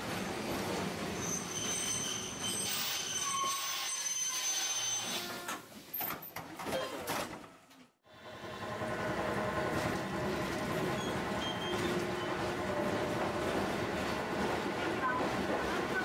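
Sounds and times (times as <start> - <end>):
tram running on rails: 0.0 - 5.4, 8.1 - 16.0
high wheel squeal: 1.2 - 5.3, 10.9 - 12.4.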